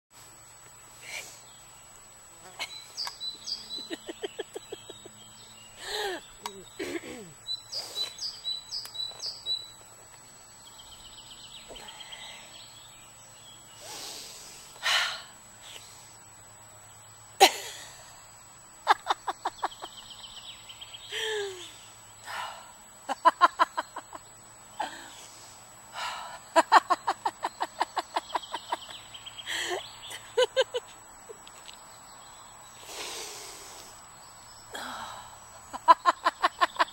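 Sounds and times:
birds chirping: 0.7s - 36.9s
woman laughing: 3.7s - 5.2s, 18.8s - 20.0s, 23.1s - 24.2s, 26.5s - 30.9s, 35.7s - 36.9s
breaths and gasps: 5.8s - 6.3s, 34.7s - 35.5s.

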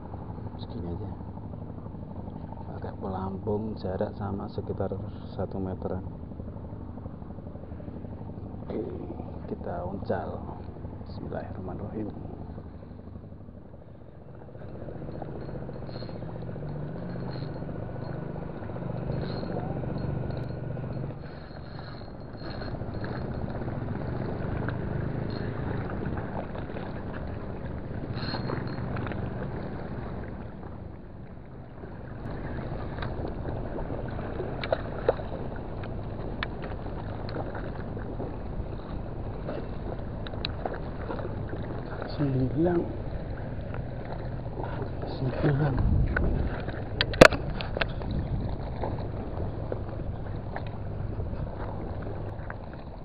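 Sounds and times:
low background rumble: 0.0s - 53.0s
fishing reel drag giving line: 14.3s - 30.6s.

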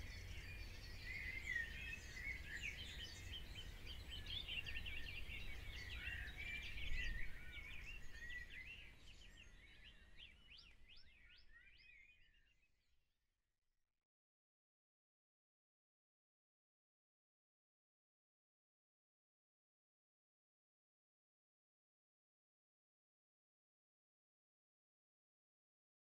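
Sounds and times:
small birds chirping: 0.0s - 12.9s.

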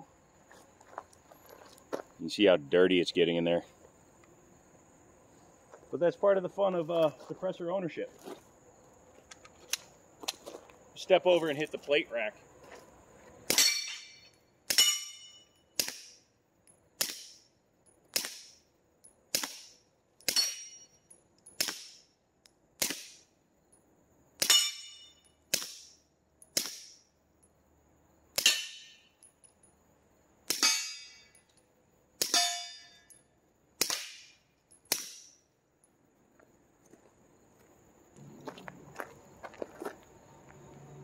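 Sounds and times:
bullet clanging on steel plate: 13.5s - 22.0s, 24.4s - 27.5s, 28.4s - 29.7s, 30.5s - 31.6s, 32.2s - 33.3s.

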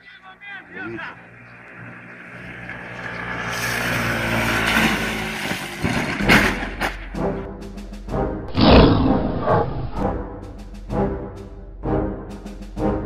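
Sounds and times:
small motorcycle engine revving: 1.2s - 6.5s.

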